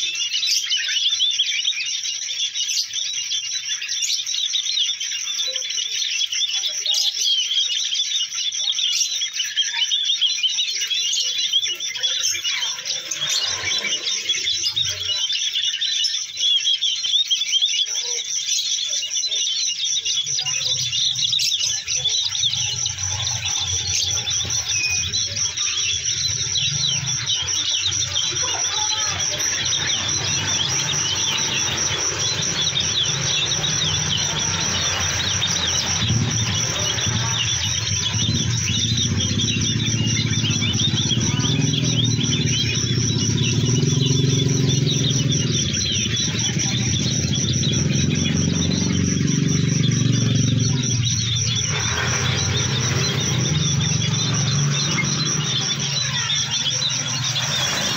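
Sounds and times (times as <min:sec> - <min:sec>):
songbird twittering: 0:00.0 - 0:57.9
high-pitched pulsing trill: 0:10.8 - 0:15.6, 0:18.8 - 0:57.9.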